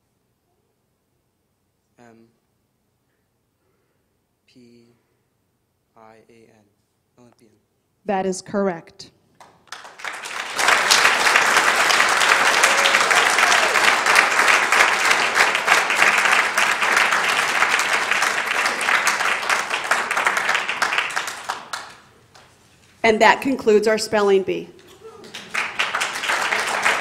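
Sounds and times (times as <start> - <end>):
audience applauding: 9.4 - 22.5, 24.9 - 27.0.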